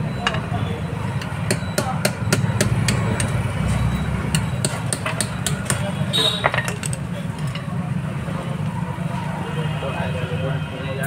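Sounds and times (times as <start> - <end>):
hammer tapping metal: 1.2 - 7.0.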